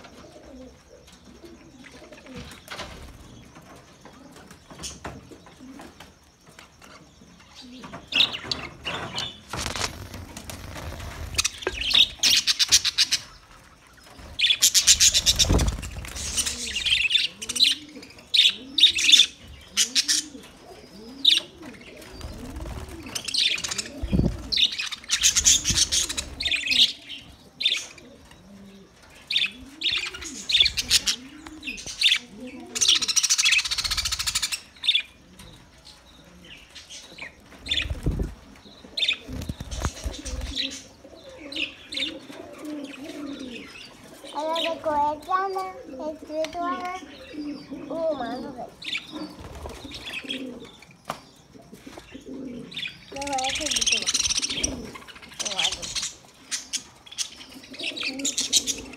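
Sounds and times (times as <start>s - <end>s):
wing flutter: 8.6s - 17.1s, 22.0s - 26.7s, 37.5s - 40.9s.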